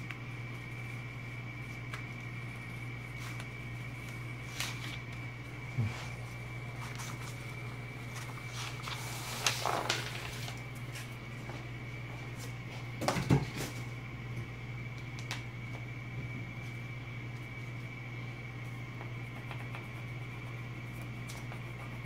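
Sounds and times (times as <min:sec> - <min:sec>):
paper sliding on wooden table: 0:08.1 - 0:10.6.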